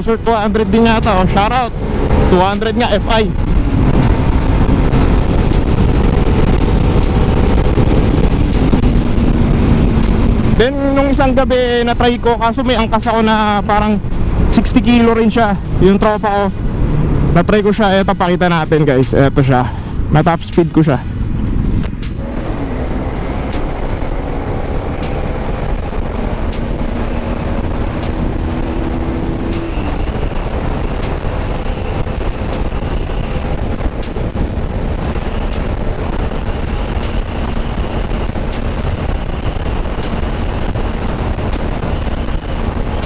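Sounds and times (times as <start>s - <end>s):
motorcycle engine revving high: 0.0s - 11.9s, 21.1s - 43.0s
wind rush on microphone: 0.0s - 43.0s.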